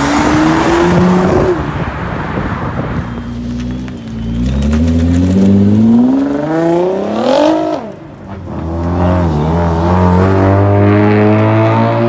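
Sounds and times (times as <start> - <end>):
car engine accelerating past: 3.5 - 12.0.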